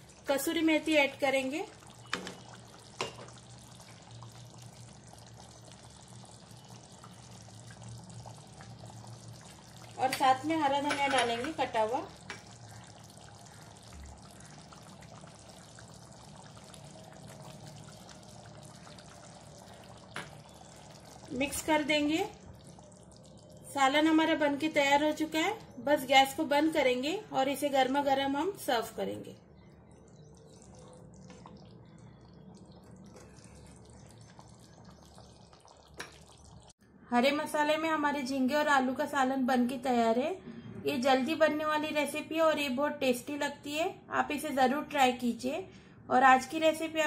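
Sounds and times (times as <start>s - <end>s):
curry bubbling in a pan: 0.0s - 36.8s.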